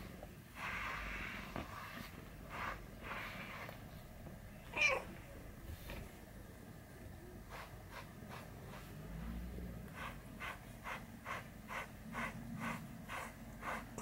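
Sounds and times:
brush stroking through fur: 0.5s - 4.1s, 7.5s - 14.0s.

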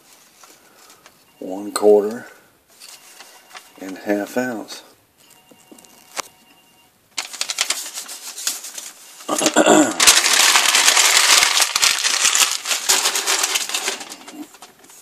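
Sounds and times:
paper crumpling and rustling: 7.2s - 15.0s.

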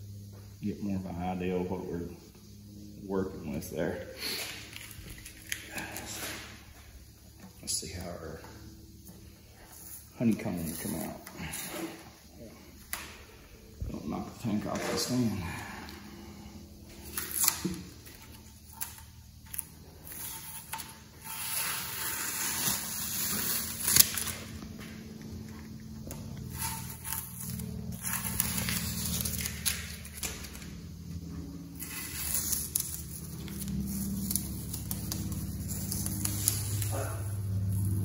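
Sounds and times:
masking tape peeling off: 17.0s - 38.0s.

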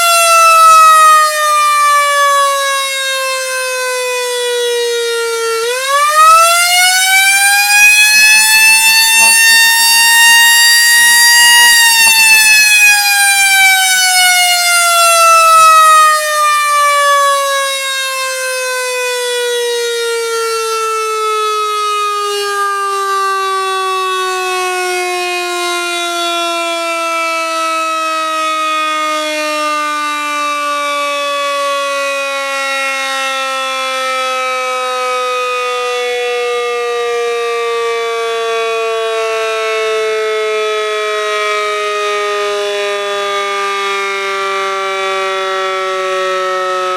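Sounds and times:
siren winding down: 0.0s - 46.9s.

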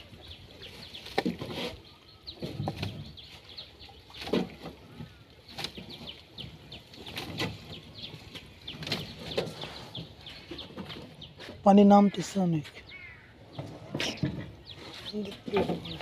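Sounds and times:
net hauled from water: 0.1s - 11.2s.

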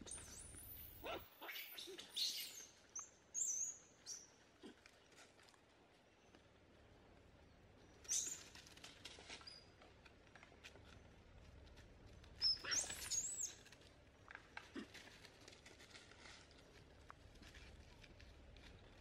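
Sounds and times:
dry leaves rustling: 8.3s - 19.0s
monkeys squealing: 12.4s - 13.6s.

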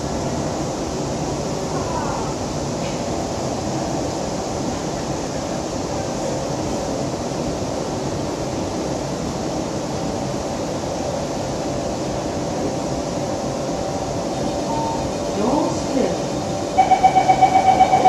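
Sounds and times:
faint hum of steady tones: 16.4s - 18.0s.

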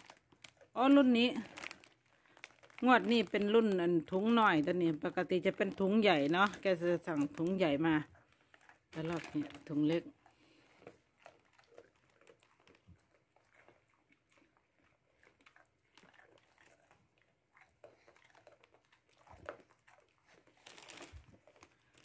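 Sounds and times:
dog chewing a treat: 0.0s - 0.8s, 5.0s - 22.0s
teeth clicking: 8.2s - 22.0s.

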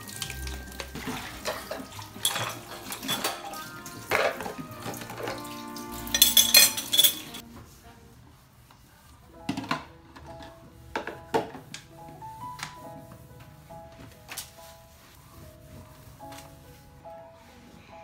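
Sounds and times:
running tap water: 0.0s - 7.4s
dishes clattering in a steel sink: 0.7s - 7.4s.

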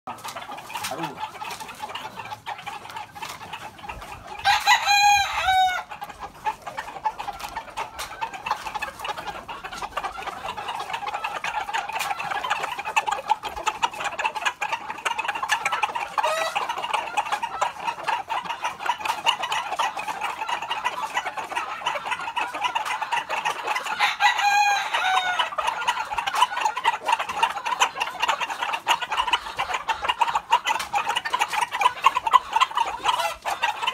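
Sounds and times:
chickens clucking: 0.1s - 33.9s
rooster crowing: 4.4s - 5.9s, 24.0s - 25.4s.

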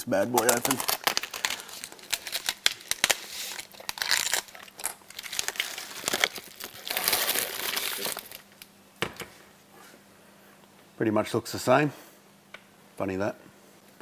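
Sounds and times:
plastic wrap crinkling: 0.0s - 8.7s.

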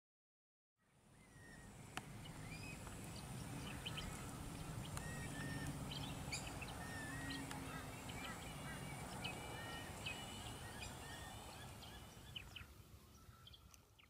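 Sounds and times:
low steady hum: 0.8s - 14.0s
bird chirps and whistles: 5.0s - 7.4s.

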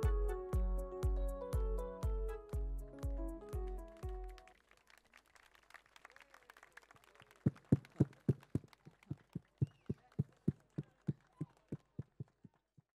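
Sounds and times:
drum beating low thumps: 0.0s - 4.4s.

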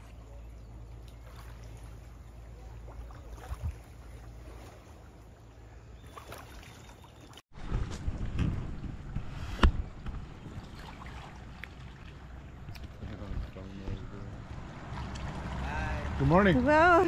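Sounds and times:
light water sounds: 0.0s - 17.0s
low steady rumble: 7.6s - 17.0s.

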